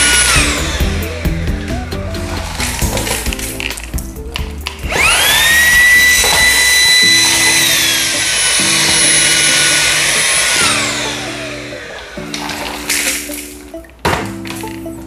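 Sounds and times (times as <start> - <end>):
vacuum cleaner motor whine: 0.0 - 1.7, 4.8 - 13.5.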